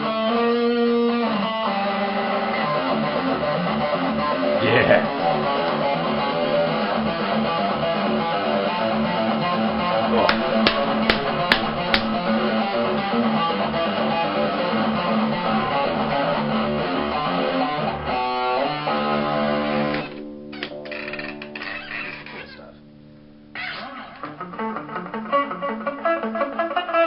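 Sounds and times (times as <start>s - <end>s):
guitar picking clicks: 10.2s - 12.3s, 19.9s - 21.7s.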